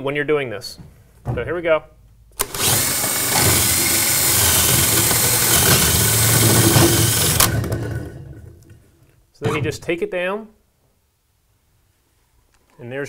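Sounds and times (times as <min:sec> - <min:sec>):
cordless drill cutting drywall: 0:02.4 - 0:08.2.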